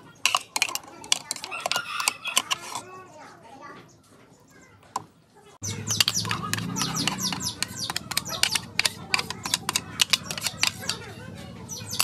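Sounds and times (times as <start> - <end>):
spatula scraping blender jar: 0.2 - 2.9, 5.9 - 12.0.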